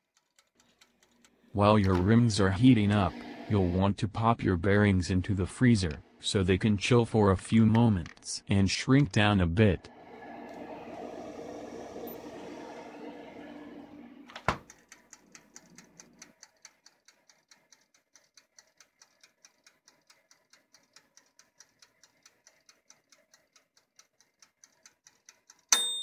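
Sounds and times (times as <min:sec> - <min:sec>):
wind-up timer ticking: 0:00.0 - 0:03.7, 0:09.8 - 0:26.0
hum with handling rustle: 0:09.9 - 0:16.2.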